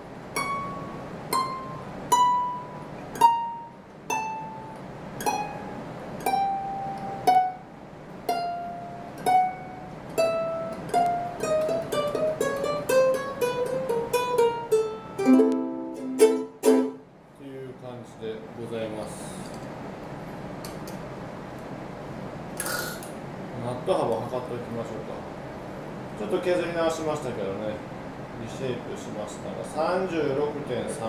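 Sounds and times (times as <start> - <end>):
ukulele plucked notes: 0.3 - 7.7, 8.3 - 17.0
ukulele strummed chords: 0.3 - 7.7, 8.3 - 17.1.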